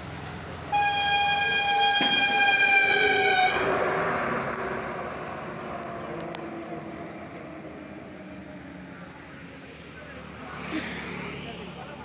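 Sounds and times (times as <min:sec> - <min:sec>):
vehicle horn long high note: 0:00.7 - 0:03.8
vehicle passing: 0:01.4 - 0:12.0.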